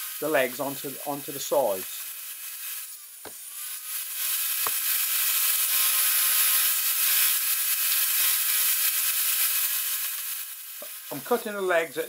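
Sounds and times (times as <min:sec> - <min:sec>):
table saw whirring: 0:03.2 - 0:08.8.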